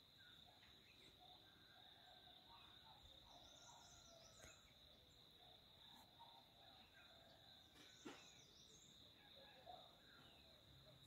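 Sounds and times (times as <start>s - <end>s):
bird chirps: 2.5s - 11.0s.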